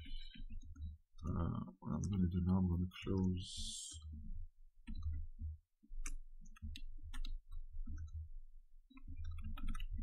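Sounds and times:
mouse and keyboard clicks: 4.8s - 5.2s, 8.9s - 10.0s.

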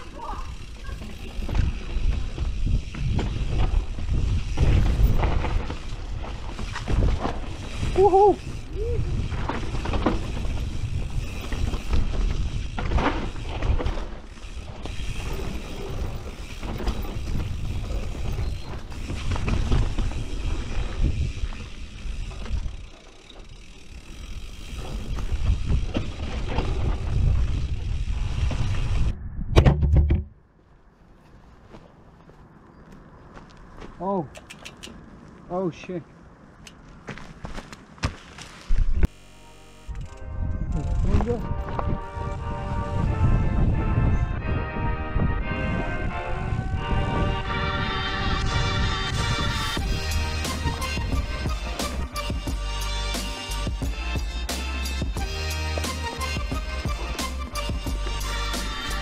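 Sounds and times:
tyres on dirt: 0.0s - 29.1s, 30.4s - 40.2s
bike knocks and rattles: 0.2s - 29.0s, 29.6s - 30.4s
wind on microphone: 1.5s - 12.9s, 24.8s - 30.3s, 39.9s - 51.4s.

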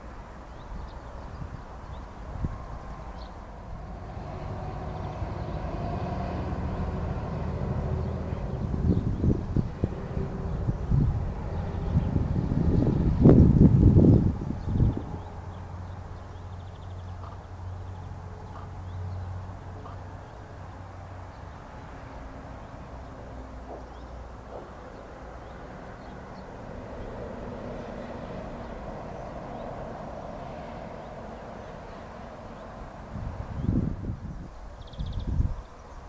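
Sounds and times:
low engine drone: 3.5s - 21.2s.

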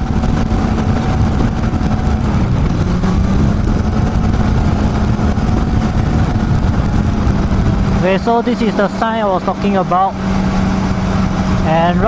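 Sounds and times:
motorcycle engine cruising: 0.0s - 12.0s.

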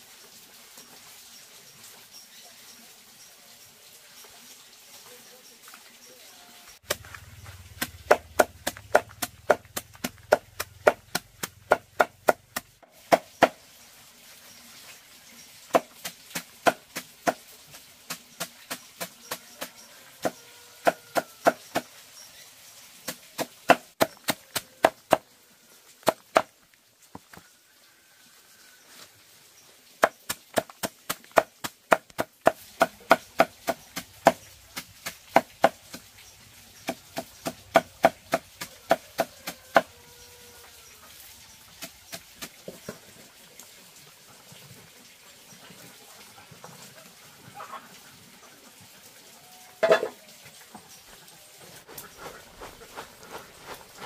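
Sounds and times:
knife chopping on a board: 7.8s - 13.5s.

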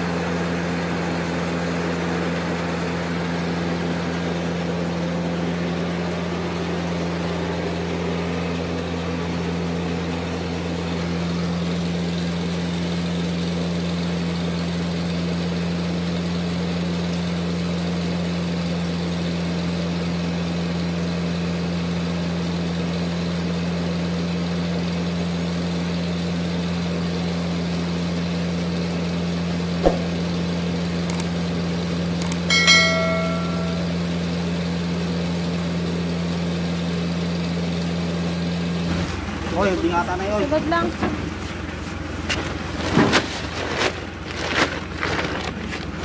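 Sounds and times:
sharp knock: 29.8s - 30.3s
mill machinery humming: 32.2s - 34.3s.

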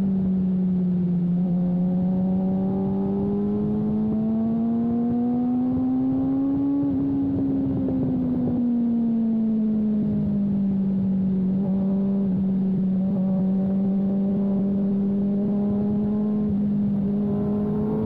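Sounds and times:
motorcycle engine revving: 0.9s - 8.6s, 9.8s - 18.0s
wind noise on microphone: 3.2s - 8.9s.

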